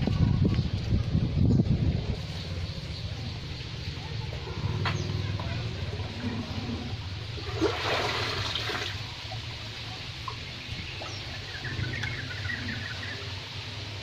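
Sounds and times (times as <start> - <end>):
water splashing into pond: 6.9 - 14.0.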